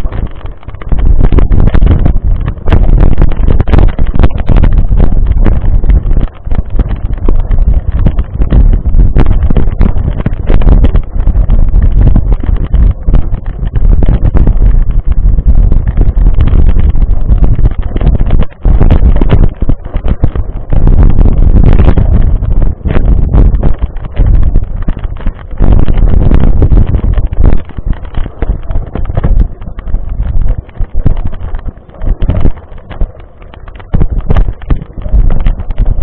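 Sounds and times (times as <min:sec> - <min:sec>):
bike tyres rattling on gravel: 0:00.0 - 0:36.0
wind buffeting microphone: 0:00.0 - 0:36.0.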